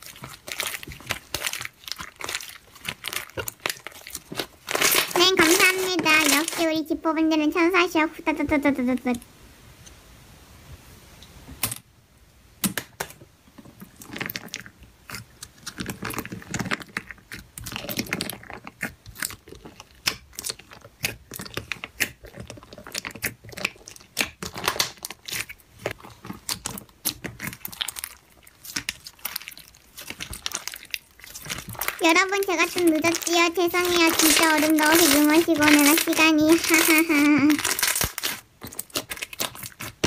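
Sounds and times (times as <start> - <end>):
slime crackling and popping: 0.0 - 9.1, 12.6 - 40.0
slime squelching: 0.0 - 9.2, 12.6 - 40.0.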